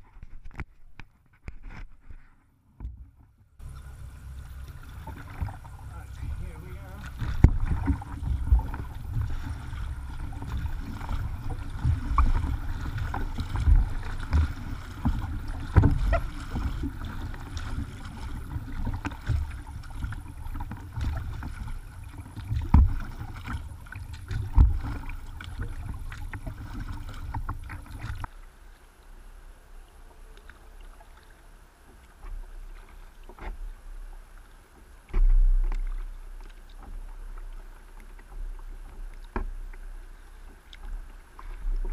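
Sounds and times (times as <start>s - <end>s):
water rumbling against hull: 0.0s - 41.9s
paddle strokes splashing: 3.6s - 29.3s, 30.2s - 41.9s
low thump: 7.1s - 9.6s.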